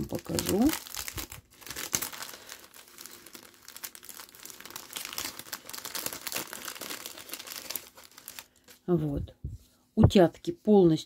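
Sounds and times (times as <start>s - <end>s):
plastic packet crinkling: 0.0s - 8.8s.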